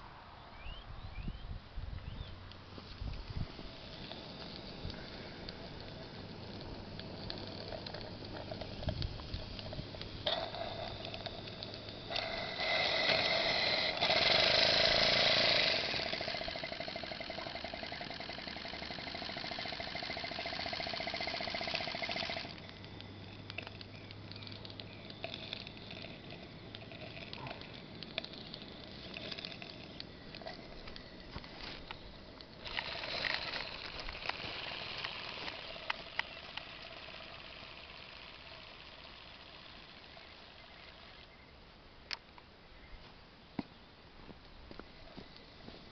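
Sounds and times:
model steam engine hissing: 3.5 - 22.5.

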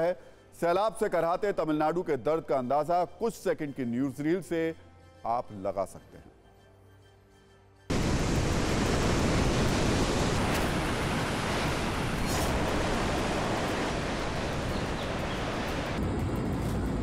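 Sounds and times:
floodwater rushing: 7.9 - 16.0.

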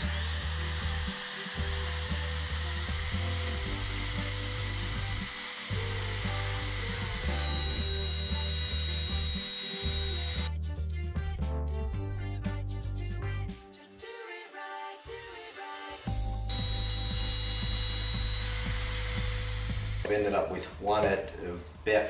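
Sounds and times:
router whining while cutting wood: 0.0 - 10.5, 16.5 - 20.4
background music with bass pulse: 0.0 - 13.8, 16.0 - 21.9.

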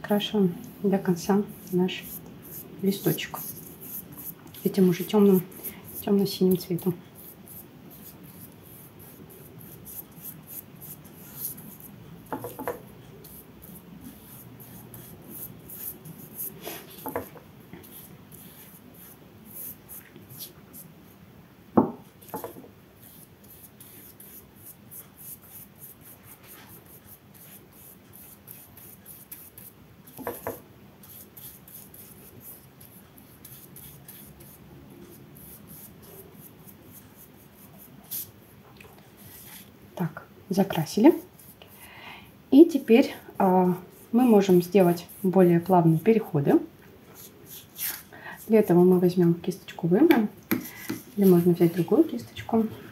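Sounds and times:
paintbrush scrubbing on paper: 1.0 - 17.2, 17.8 - 20.9, 22.0 - 30.4, 31.0 - 38.4, 43.4 - 46.2, 47.2 - 48.8, 50.6 - 52.0.

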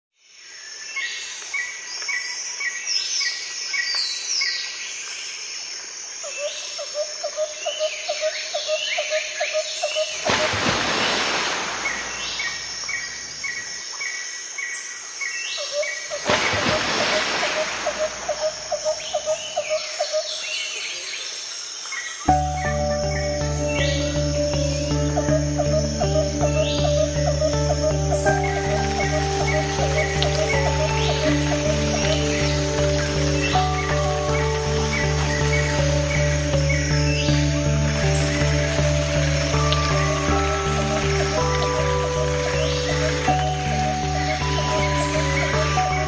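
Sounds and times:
birds chirping and singing: 22.0 - 46.0.

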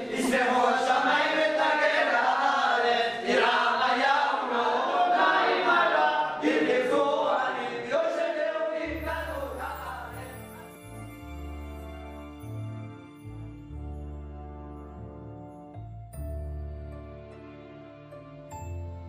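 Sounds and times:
voices chanting unaccompanied: 0.0 - 10.8
instrumental music with bass: 8.9 - 19.0.

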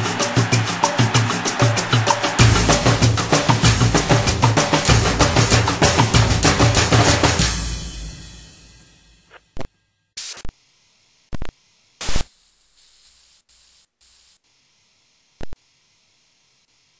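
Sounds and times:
bursts of static hiss: 0.0 - 7.8, 9.3 - 16.9
drum-heavy music: 0.0 - 9.4
faint steady hiss: 9.7 - 16.9.

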